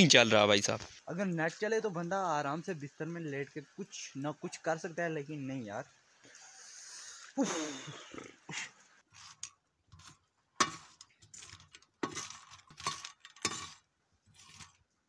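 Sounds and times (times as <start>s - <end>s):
spoon scraping iron griddle: 9.1s - 14.8s
peanut shells rattling on metal: 10.6s - 14.8s.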